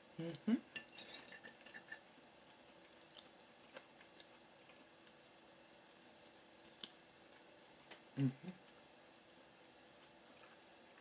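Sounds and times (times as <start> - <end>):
person chewing: 2.5 - 7.5.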